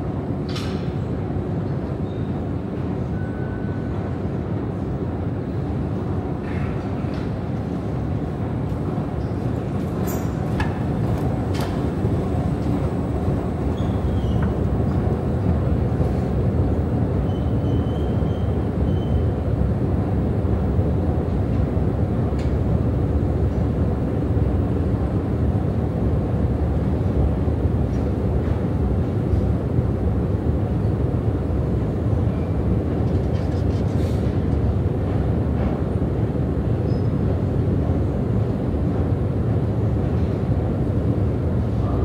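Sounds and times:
escalator rumble and hum: 0:04.6 - 0:42.0.

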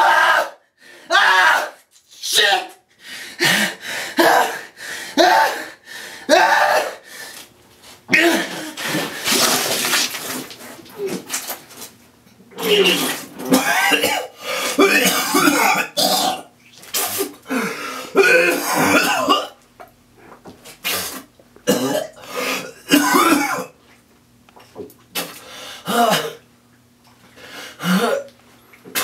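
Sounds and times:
person coughing: 0:08.1 - 0:08.8, 0:12.6 - 0:16.5, 0:17.5 - 0:19.6, 0:21.7 - 0:23.8, 0:25.2 - 0:26.4.

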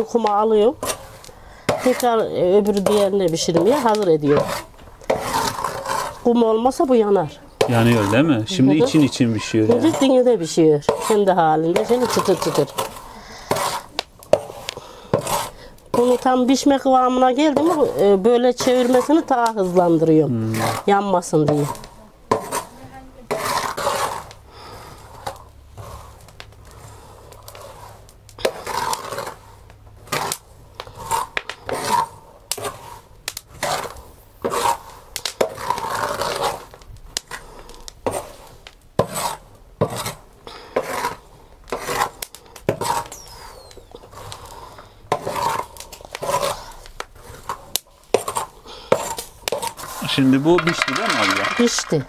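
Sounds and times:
metal scraper scraping iron griddle: 0:00.2 - 0:24.4, 0:27.5 - 0:37.5, 0:39.0 - 0:52.0
chickpeas rattling and sliding: 0:07.7 - 0:10.2, 0:49.5 - 0:52.0.

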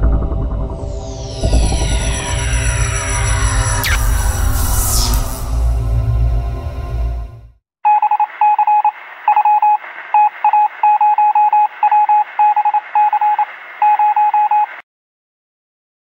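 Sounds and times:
music sting: 0:00.0 - 0:07.5
rapid electronic typing beeps: 0:07.9 - 0:14.8.

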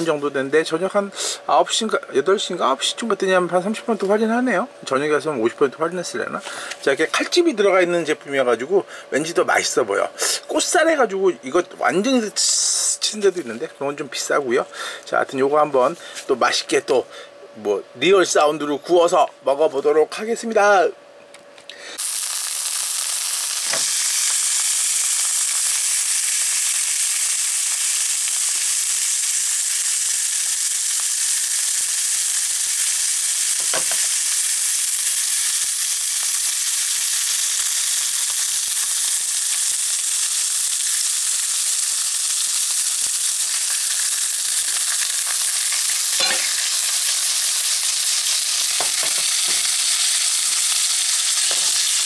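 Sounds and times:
meat sizzling in a pan: 0:22.0 - 0:52.0.

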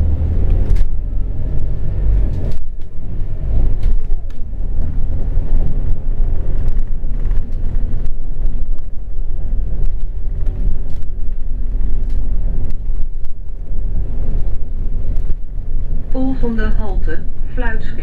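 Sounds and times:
bus engine and road rumble: 0:00.0 - 0:18.0.

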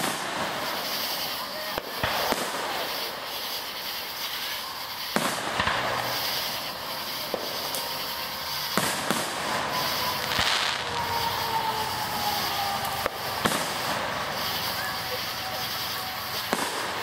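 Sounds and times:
fireworks bangs: 0:00.0 - 0:17.0
fireworks crackling: 0:00.0 - 0:17.0.

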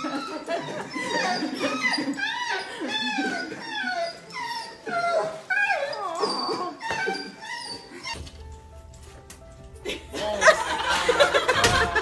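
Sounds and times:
dog whining: 0:00.0 - 0:08.3.

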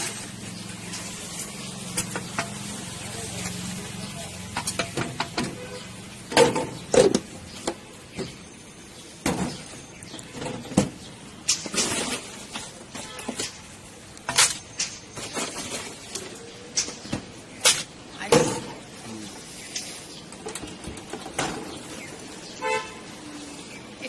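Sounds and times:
plastic jugs clattering: 0:04.5 - 0:08.5, 0:09.2 - 0:19.0, 0:20.2 - 0:22.0.

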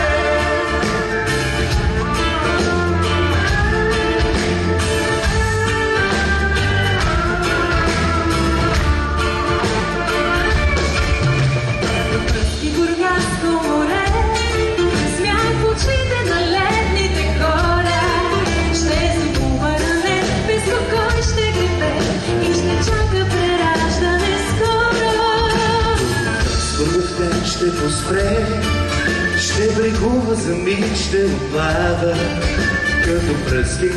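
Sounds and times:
live pop band: 0:00.0 - 0:33.9
woman singing: 0:12.4 - 0:26.4
man singing: 0:25.9 - 0:33.9.

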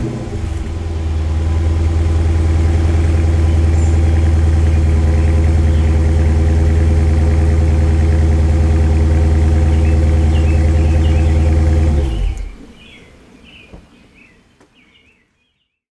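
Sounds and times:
car engine idling: 0:00.0 - 0:12.8
birds chirping: 0:00.6 - 0:06.7, 0:09.4 - 0:15.8.

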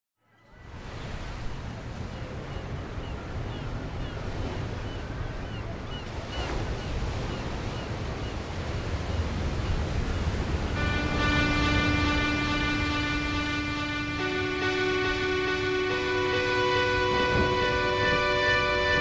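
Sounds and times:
wind: 0:00.2 - 0:19.0
ocean surf breaking: 0:00.7 - 0:19.0.

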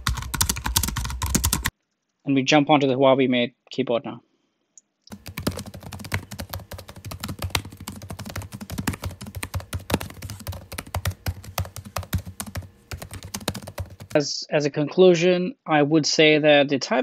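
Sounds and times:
laptop keyboard typing: 0:00.0 - 0:01.7, 0:05.1 - 0:14.2.

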